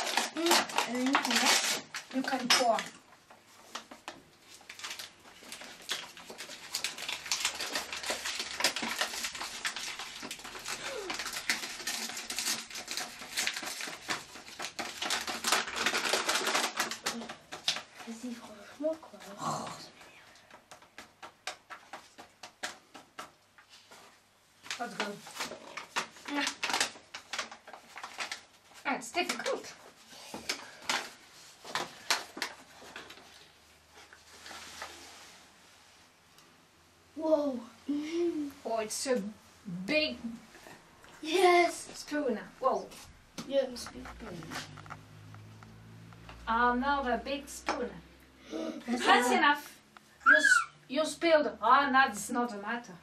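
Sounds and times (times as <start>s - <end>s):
flour bag crinkling: 0.0s - 2.9s, 3.7s - 18.2s, 24.6s - 29.8s.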